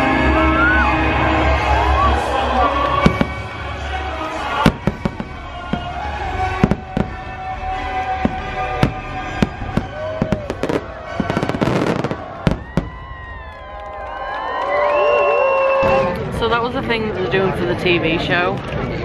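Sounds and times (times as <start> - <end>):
show music: 0.0 - 14.9
fireworks crackling: 2.0 - 14.5
fireworks bangs: 2.3 - 14.4.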